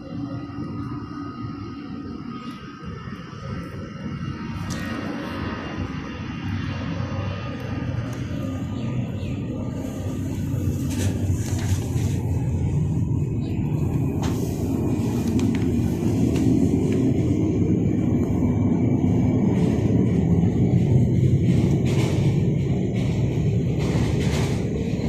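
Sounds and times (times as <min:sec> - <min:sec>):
jet engines rumbling: 0:00.0 - 0:25.0.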